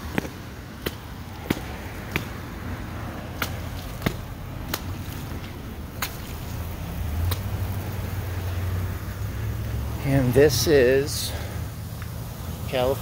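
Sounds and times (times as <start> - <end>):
footsteps on wet concrete: 0.0 - 8.6.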